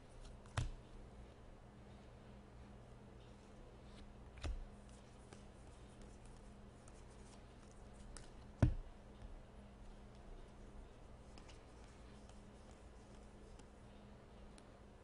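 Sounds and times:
low steady hum: 0:00.0 - 0:15.0
cards sliding and clicking: 0:03.9 - 0:08.4.

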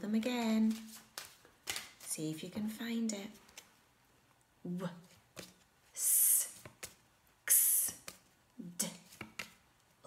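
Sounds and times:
flashcards clicking: 0:00.7 - 0:02.1
woman saying letter sounds: 0:04.6 - 0:05.2, 0:06.0 - 0:06.7, 0:07.5 - 0:09.2.

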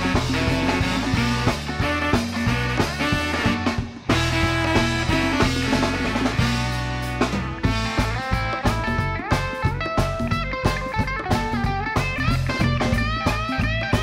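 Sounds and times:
guitar music with steady beat: 0:00.0 - 0:14.0.

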